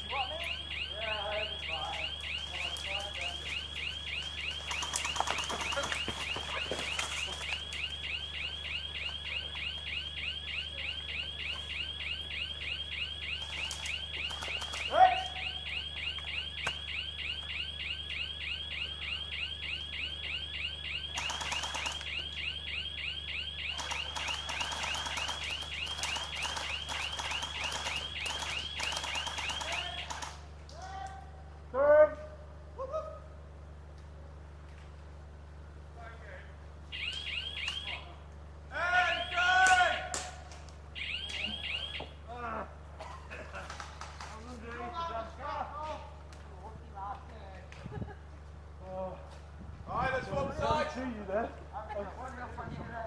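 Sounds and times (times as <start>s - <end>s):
electronic alarm chirping: 0.0s - 30.4s, 36.9s - 38.1s, 39.0s - 39.5s, 41.0s - 42.2s
short noisy bursts: 23.6s - 30.5s.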